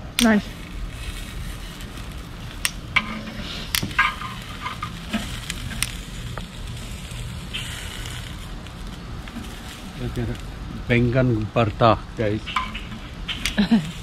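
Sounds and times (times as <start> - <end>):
eggplant sizzling: 0.0 - 14.0
metal tongs clicking on grill grate: 0.2 - 0.4.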